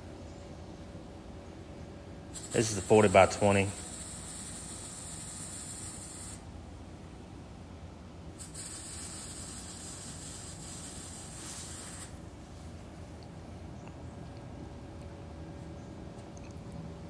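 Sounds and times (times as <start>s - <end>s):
welding arc hissing: 2.3s - 6.4s, 8.4s - 12.2s.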